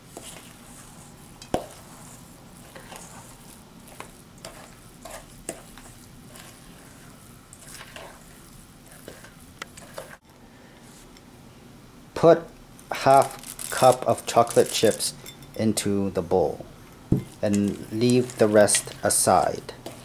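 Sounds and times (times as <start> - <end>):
spoon stirring thick batter: 0.0 - 10.2, 17.2 - 20.0.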